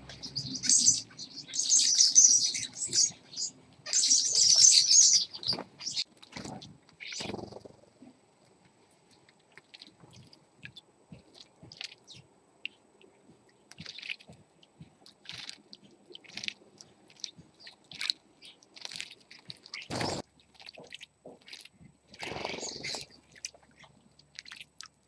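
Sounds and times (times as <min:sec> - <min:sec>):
birds splashing in water: 0:13.7 - 0:14.3, 0:15.0 - 0:24.9.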